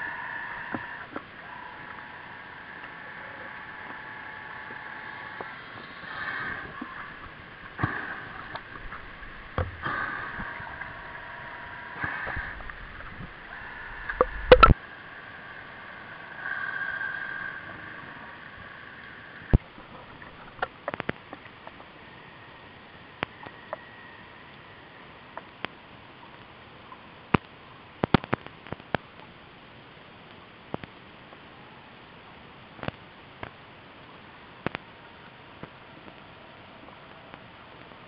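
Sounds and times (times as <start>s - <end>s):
electric motor whine underwater: 0.0s - 26.0s
clicks: 12.0s - 14.8s.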